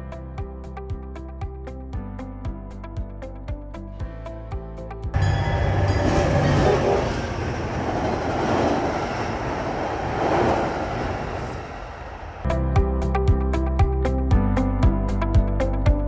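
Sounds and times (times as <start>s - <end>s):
train wheels rumbling on bridge: 5.2s - 12.5s.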